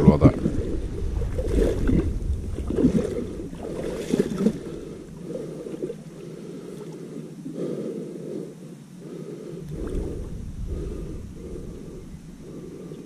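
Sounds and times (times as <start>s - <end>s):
water sloshing and splashing: 0.0s - 7.2s.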